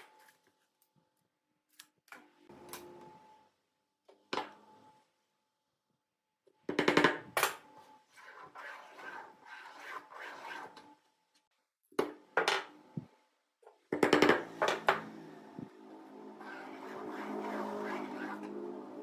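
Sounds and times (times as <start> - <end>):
pen scraping across wood: 8.2 - 10.9, 16.4 - 18.6.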